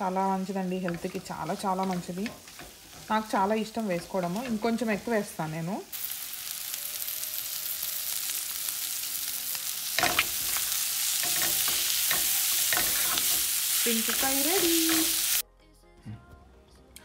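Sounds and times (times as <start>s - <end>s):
shrimp sizzling in hot oil: 0.0s - 15.4s
spatula stirring in pan: 0.4s - 4.8s, 10.0s - 15.4s.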